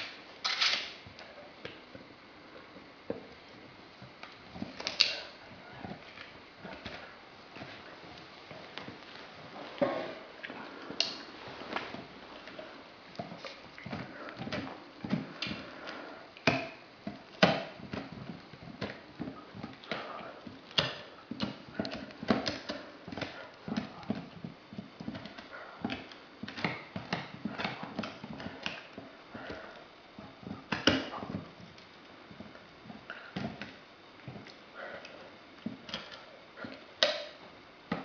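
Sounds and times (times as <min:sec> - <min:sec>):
dog gnawing on a bone: 0:10.4 - 0:37.4.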